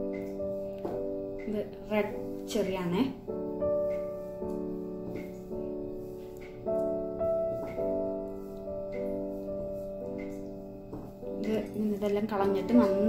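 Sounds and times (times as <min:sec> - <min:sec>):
piano chords: 0:00.0 - 0:13.0.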